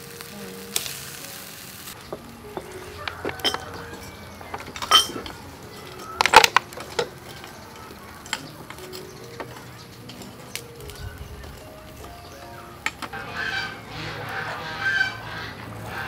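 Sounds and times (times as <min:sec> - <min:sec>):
chicken sizzling on grill: 0:00.0 - 0:16.0
kitchenware clinking and knocking: 0:02.0 - 0:13.2.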